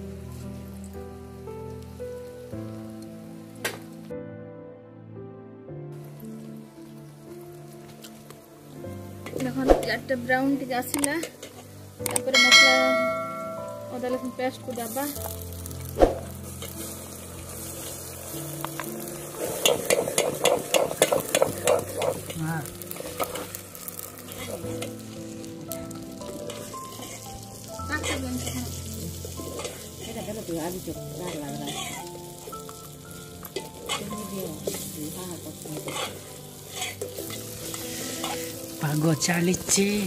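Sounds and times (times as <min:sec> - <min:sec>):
onions sizzling in oil: 0:00.0 - 0:04.1, 0:05.9 - 0:40.0
spoon scraping a pan: 0:26.5 - 0:27.3, 0:28.0 - 0:30.3, 0:31.3 - 0:32.1, 0:35.6 - 0:38.6.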